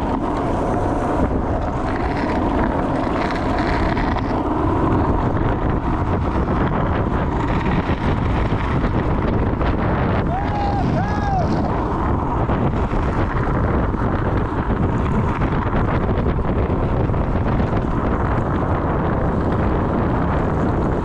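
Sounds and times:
small clicks from road: 0:00.0 - 0:10.0, 0:11.3 - 0:21.0
wheels rolling on asphalt: 0:00.0 - 0:21.0
wind buffeting microphone: 0:00.0 - 0:21.0.

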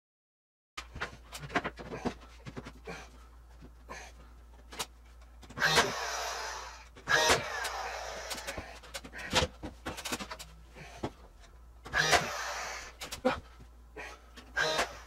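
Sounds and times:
nail gun firing: 0:05.6 - 0:06.2, 0:07.1 - 0:08.6, 0:11.9 - 0:13.2
nail gun motor whirring: 0:05.6 - 0:08.7, 0:11.9 - 0:13.2.

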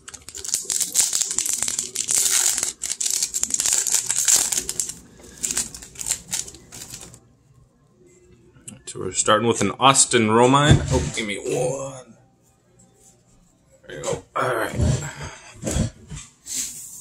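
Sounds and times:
foil wrapper tearing and crinkling: 0:00.0 - 0:07.2.

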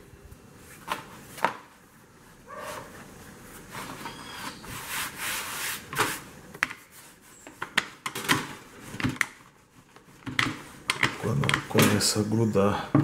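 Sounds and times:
hands rubbing dough on board: 0:03.4 - 0:07.8.

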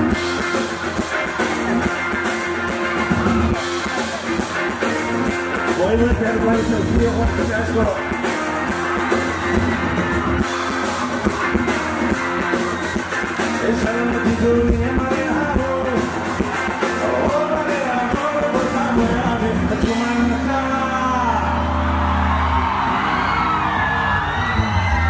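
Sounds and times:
steady drum beat: 0:00.0 - 0:21.2
electric guitar: 0:00.0 - 0:25.0
man singing: 0:05.8 - 0:08.0, 0:13.5 - 0:16.2, 0:17.0 - 0:21.8.

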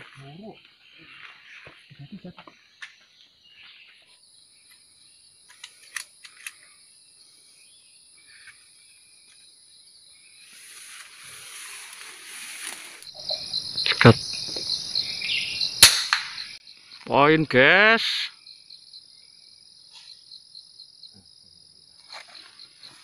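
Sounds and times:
insects buzzing: 0:00.0 - 0:23.0
air rifle shot: 0:15.8 - 0:16.6.

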